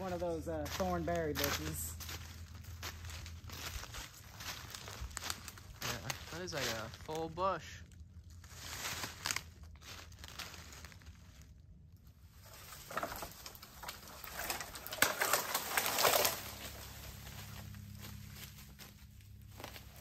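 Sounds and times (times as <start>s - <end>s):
dry brush crunching: 0.0s - 20.0s.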